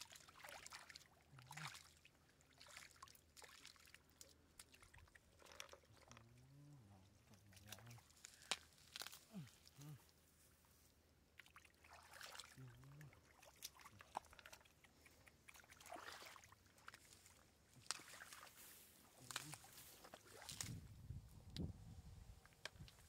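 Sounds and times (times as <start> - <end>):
fish splashing in shallow water: 0.0 - 6.3, 11.2 - 21.0.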